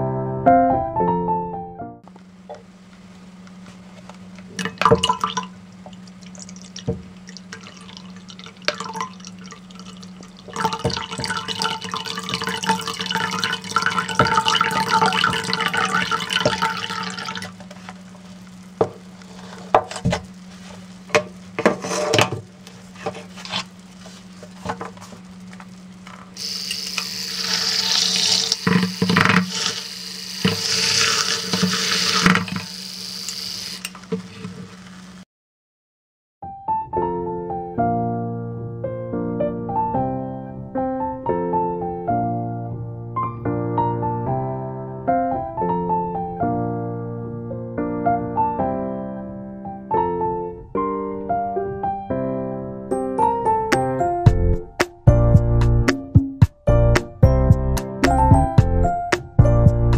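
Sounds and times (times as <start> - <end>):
liquid pouring into mug: 4.6 - 17.6, 26.4 - 33.9
milk frother whirring: 26.4 - 35.2.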